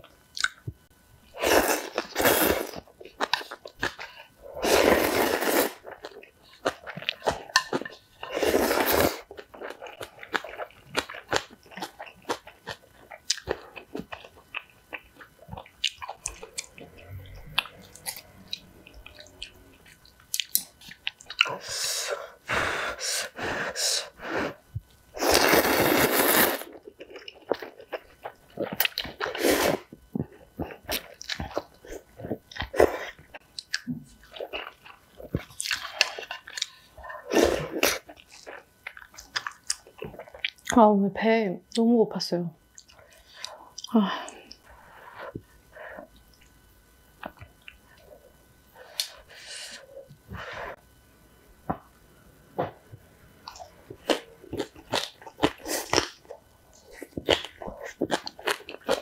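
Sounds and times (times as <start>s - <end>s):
person slurping noodles: 1.4s - 2.8s, 4.6s - 5.8s, 8.2s - 9.3s, 25.2s - 26.7s
wet chewing: 53.5s - 59.0s.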